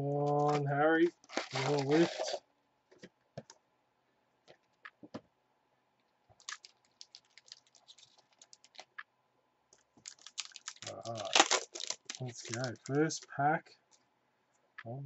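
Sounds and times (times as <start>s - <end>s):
crinkly foil clicks: 6.4s - 9.0s, 10.0s - 13.0s.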